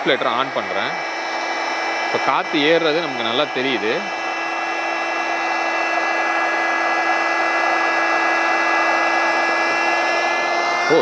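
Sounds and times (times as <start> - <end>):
electric air inflator running: 0.0 - 11.0.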